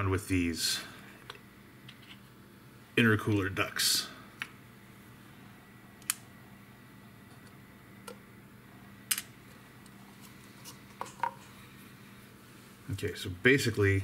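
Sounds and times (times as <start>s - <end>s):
faint room hum: 0.0s - 14.0s.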